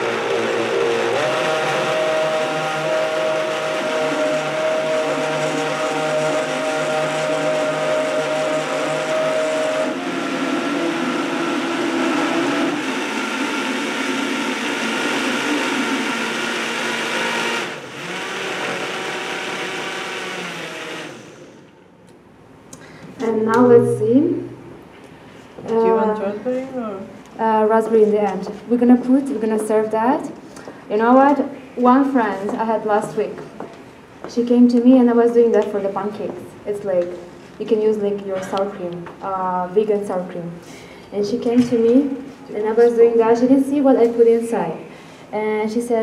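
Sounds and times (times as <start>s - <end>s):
blender running: 0.0s - 21.8s.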